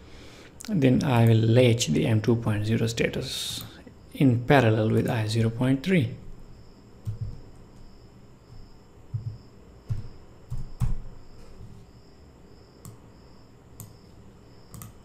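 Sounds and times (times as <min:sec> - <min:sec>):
faint high pulsing whine: 0:00.0 - 0:15.0
mouse clicks: 0:12.8 - 0:13.0, 0:13.8 - 0:14.0, 0:14.7 - 0:15.0.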